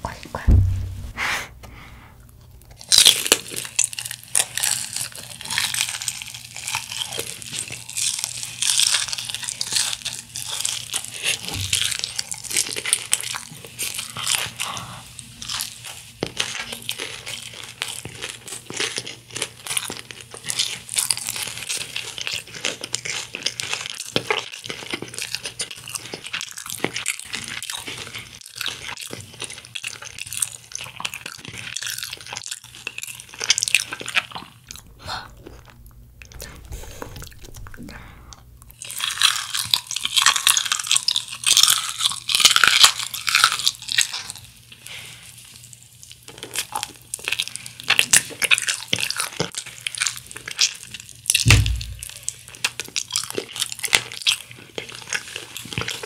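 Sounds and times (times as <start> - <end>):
smacking chews: 2.2 - 56.0
crunching fried chicken: 2.6 - 38.0, 38.7 - 56.0.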